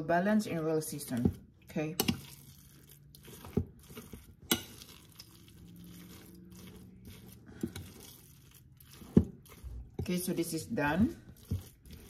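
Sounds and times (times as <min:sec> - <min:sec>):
spoon stirring food in bowl: 0:00.4 - 0:12.0
spoon clinking against bowl: 0:02.0 - 0:02.4, 0:04.5 - 0:05.0.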